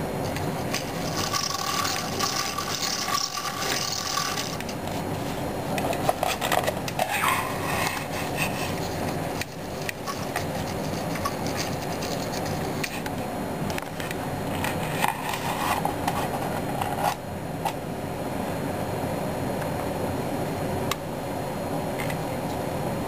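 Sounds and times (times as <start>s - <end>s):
scratchy scrapes: 0.6s - 13.1s.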